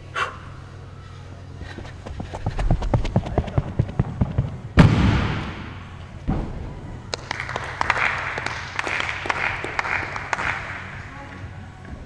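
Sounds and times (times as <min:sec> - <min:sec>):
running footsteps: 0:01.6 - 0:04.8
loud impact on mats: 0:03.7 - 0:06.9.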